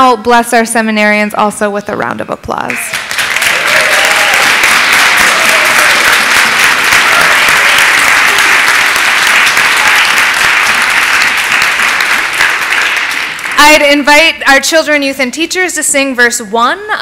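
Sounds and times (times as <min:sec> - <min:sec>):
crowd clapping: 0:02.7 - 0:14.3.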